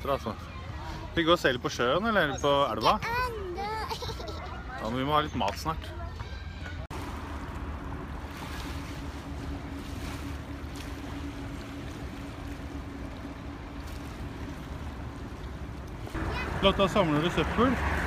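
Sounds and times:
steady mechanical drone: 6.9 - 18.0.

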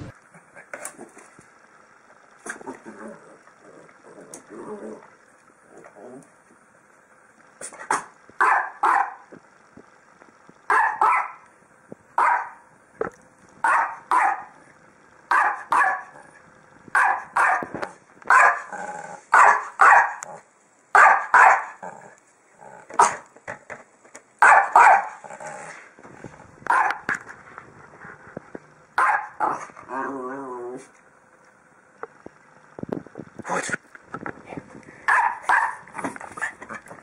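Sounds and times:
dog barking: 7.9 - 9.2, 10.7 - 11.4, 12.2 - 12.6, 13.6 - 14.5, 15.3 - 16.2, 17.0 - 17.7, 18.3 - 18.7, 19.3 - 20.2, 20.9 - 21.8, 23.0 - 23.2, 24.4 - 25.2, 26.7 - 27.1, 29.0 - 29.6, 35.1 - 35.9.

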